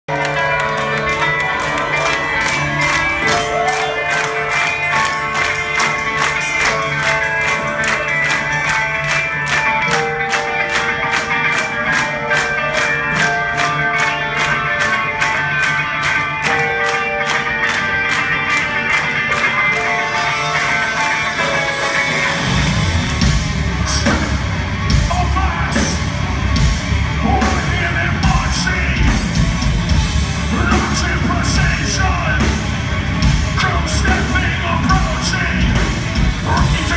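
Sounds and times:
keyboard: 0.0 - 36.9
drums: 0.1 - 36.9
electric guitars: 0.1 - 36.9
heavy rock band playing: 0.1 - 36.9.

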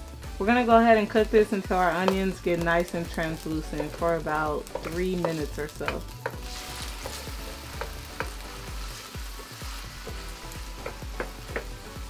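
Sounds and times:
onions sizzling in hot oil: 0.0 - 12.0
wooden spoon knocking on pan: 1.9 - 2.3, 3.6 - 7.2, 7.8 - 8.4, 10.8 - 11.8.

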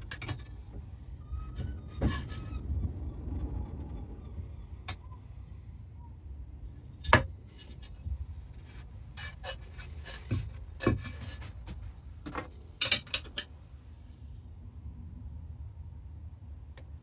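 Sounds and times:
metal parts clicking and clinking: 12.8 - 13.5.

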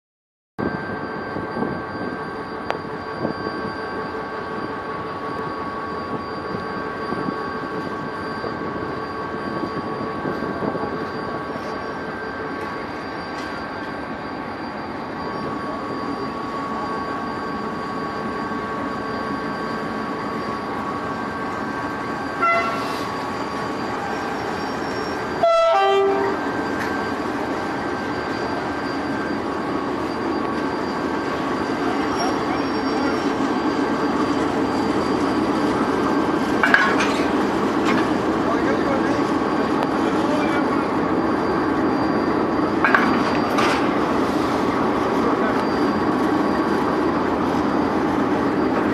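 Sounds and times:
high steady whine: 0.6 - 48.9
locomotive engine drone: 0.6 - 48.9
locomotive horn: 22.4 - 23.0, 25.4 - 26.4.

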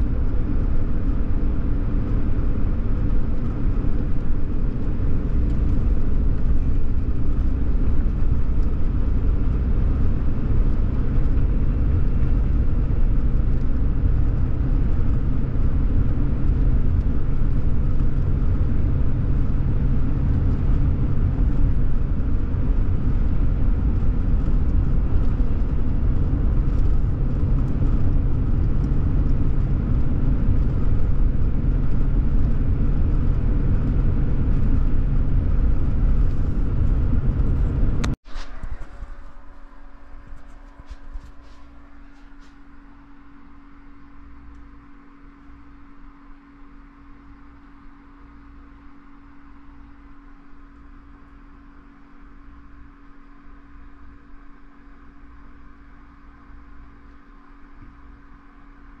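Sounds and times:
truck driving rumble: 0.0 - 45.3
tyre and engine noise: 0.0 - 59.0.

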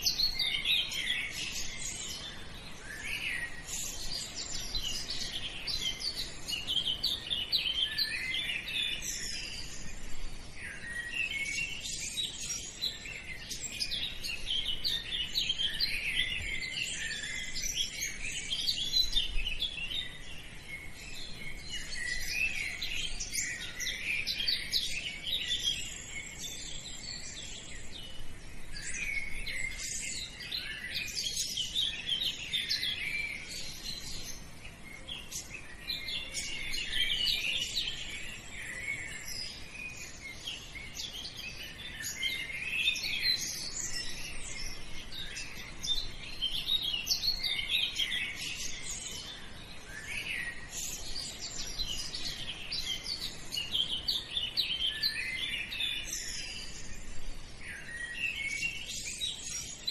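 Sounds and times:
small birds chirping and singing: 0.0 - 59.9.

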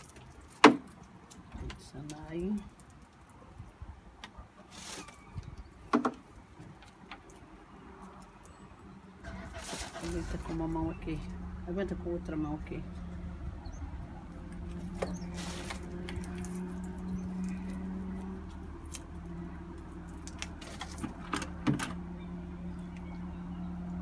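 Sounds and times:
dry roots clicking and rustling: 0.0 - 11.5, 14.2 - 21.6.

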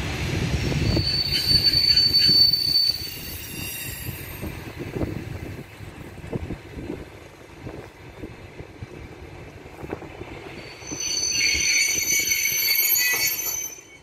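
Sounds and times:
train coaches rumbling: 0.0 - 14.0
train brakes squealing: 0.5 - 4.7, 10.4 - 14.0.

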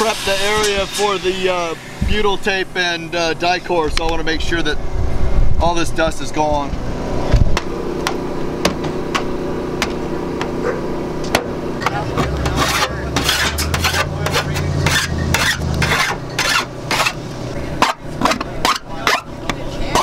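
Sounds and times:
low hum: 0.0 - 20.0
metal scraper rasping on sheet metal: 11.8 - 17.2, 17.8 - 20.0.

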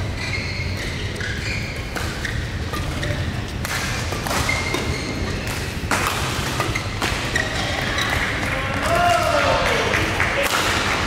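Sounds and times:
shoe squeaks on court: 0.0 - 5.8, 6.5 - 8.3
rackets hitting shuttlecock: 0.7 - 9.0.

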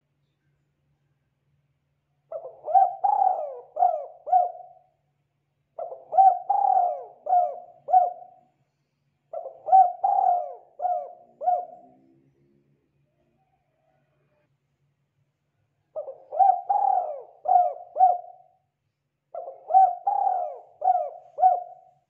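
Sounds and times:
dove cooing: 2.3 - 4.9, 5.8 - 8.4, 9.3 - 12.0, 16.0 - 18.6, 19.4 - 22.0.

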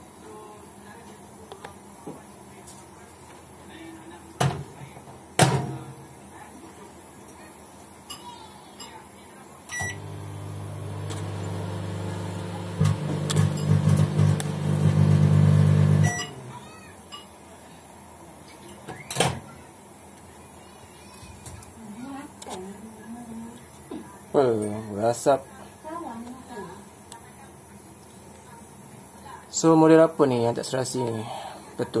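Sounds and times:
microwave beep: 9.7 - 16.5
microwave oven humming: 9.7 - 17.3.

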